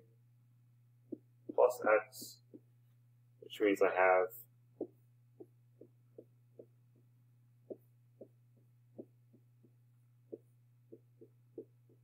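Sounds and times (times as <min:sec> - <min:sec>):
steady low hum: 0:00.0 - 0:12.0
stylus tapping on tablet screen: 0:01.0 - 0:03.0, 0:04.7 - 0:12.0.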